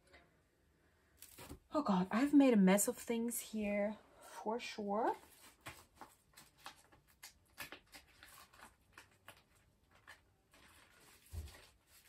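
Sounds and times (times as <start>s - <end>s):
plastic sleeves rustling and clicking: 5.2s - 12.0s.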